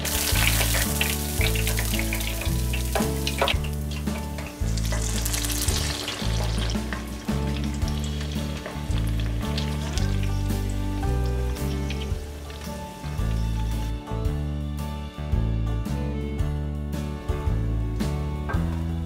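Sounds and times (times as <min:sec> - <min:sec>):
oil sizzling and crackling: 0:00.0 - 0:14.1
background music with bass line: 0:00.0 - 0:19.0.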